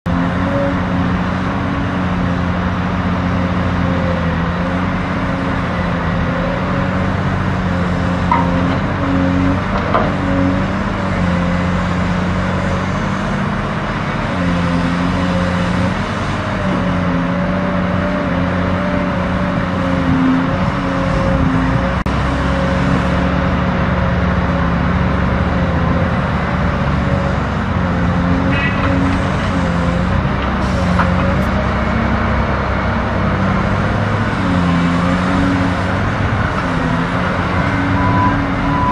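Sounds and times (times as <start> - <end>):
heavy diesel engines running: 0.1 - 38.9
deeper rumble: 7.0 - 11.0.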